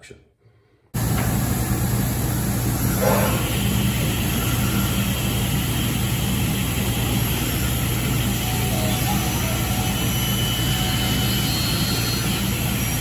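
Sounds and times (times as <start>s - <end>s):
band saw cutting wood: 7.1s - 13.0s.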